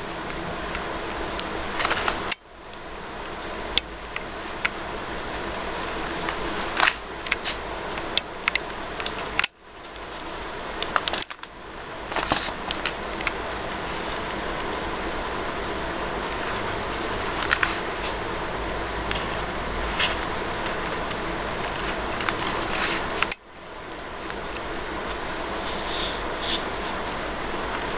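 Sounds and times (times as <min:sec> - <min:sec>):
steady room noise hiss: 0:00.0 - 0:27.9.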